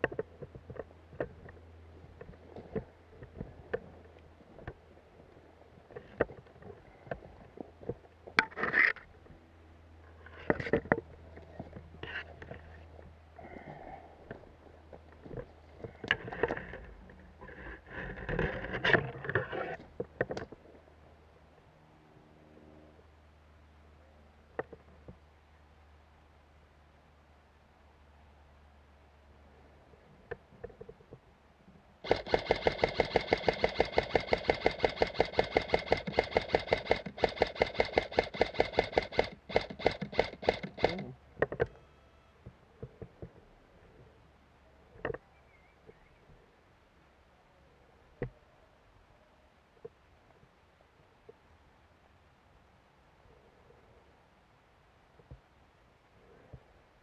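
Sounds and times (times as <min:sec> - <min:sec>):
airsoft rifle rapid firing: 0:32.0 - 0:41.1
sharp clicks: 0:32.0 - 0:41.8.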